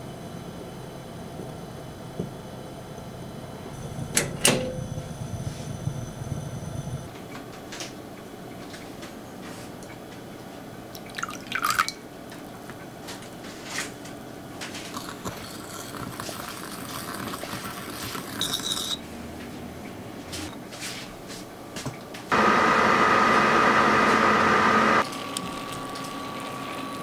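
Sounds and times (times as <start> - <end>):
wire whisk stirring: 14.9 - 19.0.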